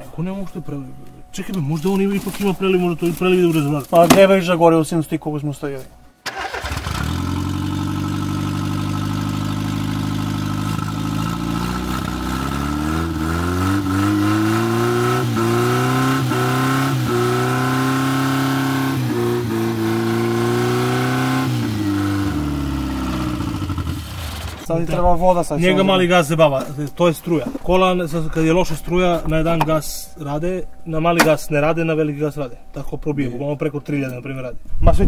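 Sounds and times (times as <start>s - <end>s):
petrol engine revving: 6.3s - 24.7s.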